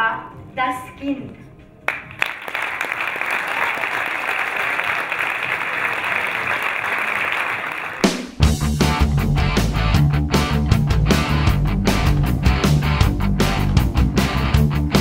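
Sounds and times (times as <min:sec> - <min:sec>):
audience applauding: 0:01.9 - 0:08.4.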